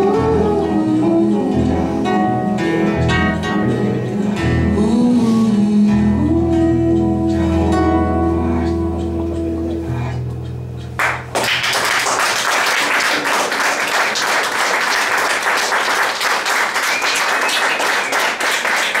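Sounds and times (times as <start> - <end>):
acoustic guitar and keyboard: 0.0 - 11.4
audience applauding: 11.0 - 19.0.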